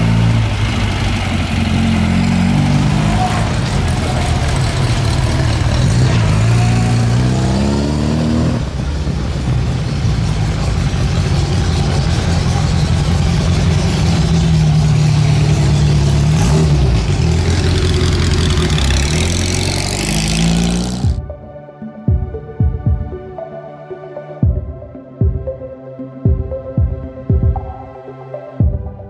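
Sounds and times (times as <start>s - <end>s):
small sports car engines revving: 0.0s - 21.2s.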